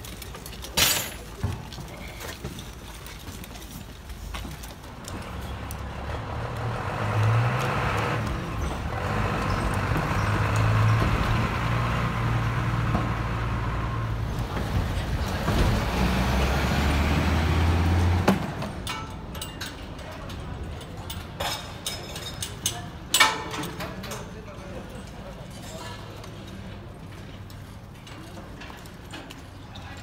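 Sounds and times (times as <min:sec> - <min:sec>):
large vehicle engine drone: 0:05.4 - 0:18.9.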